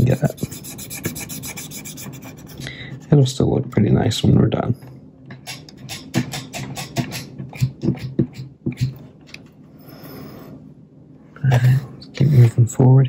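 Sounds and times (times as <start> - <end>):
cotton swab rubbing metal: 0.0 - 2.6.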